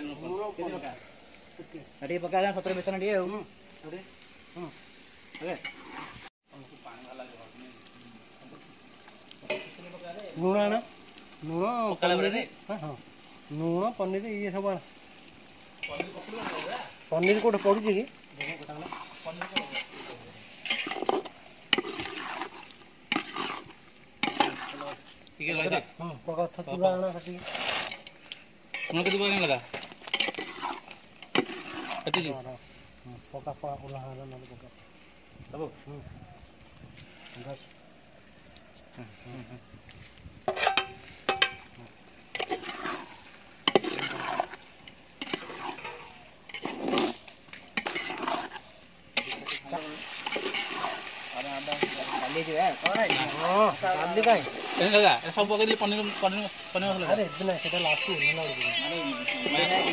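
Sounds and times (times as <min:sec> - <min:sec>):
metal spoon scraping a pot: 0:18.4 - 0:24.9, 0:27.4 - 0:32.3, 0:40.5 - 0:41.6, 0:42.4 - 0:44.6, 0:45.2 - 0:47.2, 0:47.8 - 0:51.1.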